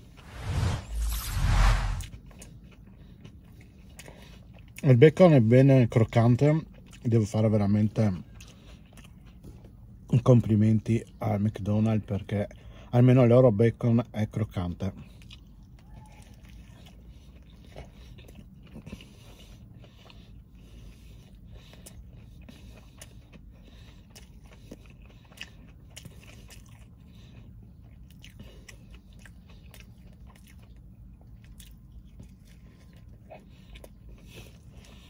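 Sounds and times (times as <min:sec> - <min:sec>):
crunchy chewing: 0:06.1 - 0:09.8, 0:15.0 - 0:35.0.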